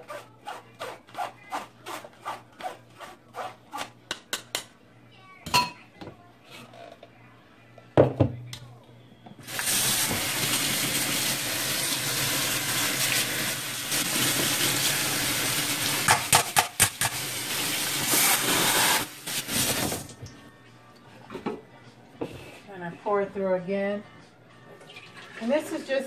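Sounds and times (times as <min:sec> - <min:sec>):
tap water running into sink: 0:09.5 - 0:20.3, 0:24.8 - 0:25.8.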